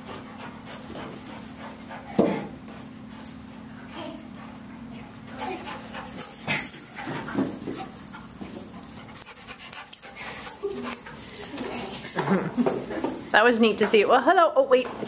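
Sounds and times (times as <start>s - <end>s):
dog panting and sniffing: 0.0s - 15.0s.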